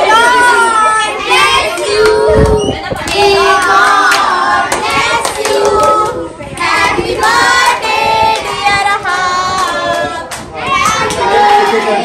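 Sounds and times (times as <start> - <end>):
group singing birthday song: 0.0 - 12.0.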